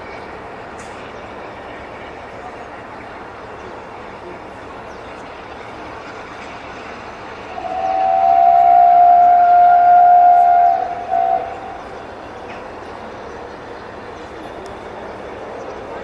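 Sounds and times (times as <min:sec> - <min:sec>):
steady steam hiss: 0:00.0 - 0:16.0
steam locomotive whistle: 0:07.6 - 0:12.0.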